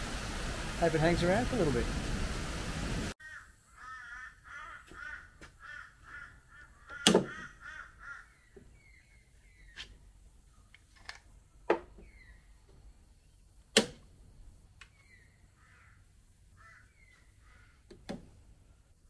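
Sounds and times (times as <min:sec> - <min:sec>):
rain falling: 0:00.0 - 0:03.2
birds calling: 0:03.2 - 0:10.9, 0:11.5 - 0:13.5, 0:14.8 - 0:18.1.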